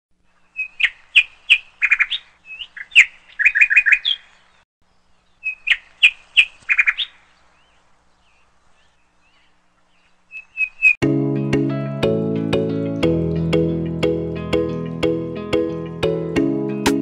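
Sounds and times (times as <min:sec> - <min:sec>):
songbird chirping and trilling: 0:00.2 - 0:11.0.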